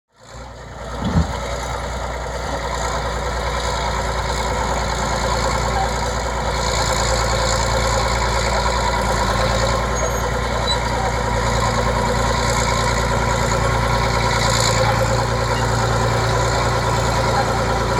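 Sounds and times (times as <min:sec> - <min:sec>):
bulldozer diesel engine running: 0:00.1 - 0:17.9
low thump: 0:01.0 - 0:01.5.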